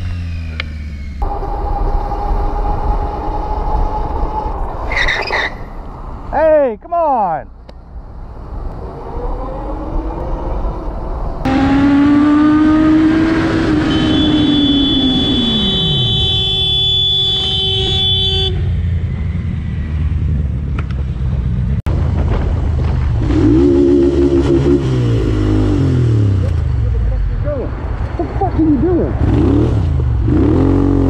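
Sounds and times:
motorcycle engine: 0.0 - 4.7, 8.9 - 26.8
road noise: 0.0 - 31.0.

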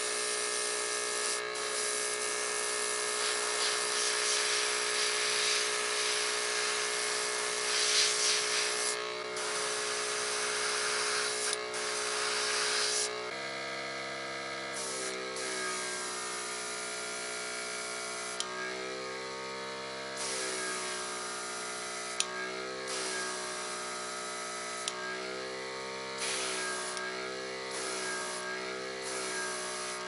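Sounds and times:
airbrush hissing: 1.1 - 13.1, 14.8 - 16.8, 18.1 - 18.5, 20.2 - 22.2, 22.8 - 25.0, 26.2 - 27.1, 27.7 - 30.0
compressor humming: 1.2 - 13.3, 14.7 - 30.0.

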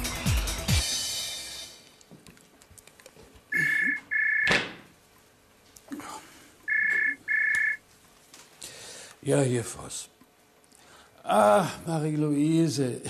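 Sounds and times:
telephone ringing: 3.5 - 4.6, 6.7 - 7.8.

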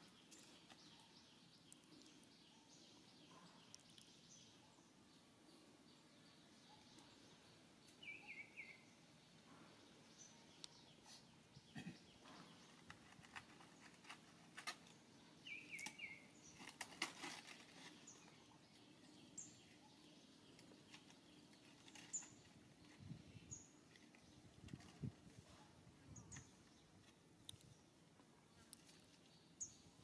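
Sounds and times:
rustling of dry leaves: 12.6 - 19.2, 20.6 - 23.2.

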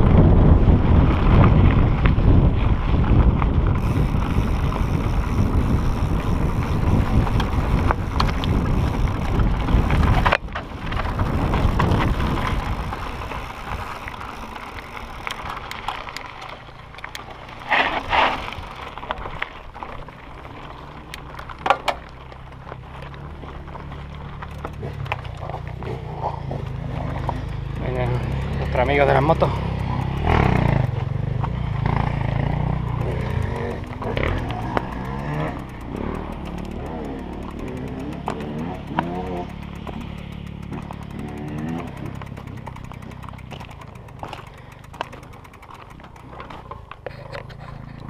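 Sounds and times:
wind rumble on microphone: 0.0 - 17.4
bike clatters: 0.0 - 48.0
bike crunching on gravel: 0.0 - 48.0
bike rattling over stones: 0.0 - 48.0.

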